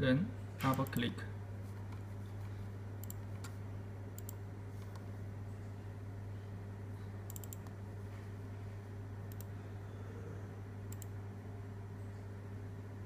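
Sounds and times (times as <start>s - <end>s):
steady low hum: 0.0s - 13.0s
computer mouse clicks: 3.0s - 5.1s, 7.3s - 7.8s, 9.3s - 9.5s, 10.9s - 11.2s.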